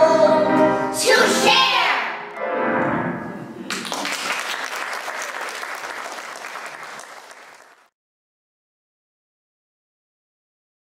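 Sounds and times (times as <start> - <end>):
audience applause: 3.7 - 7.9.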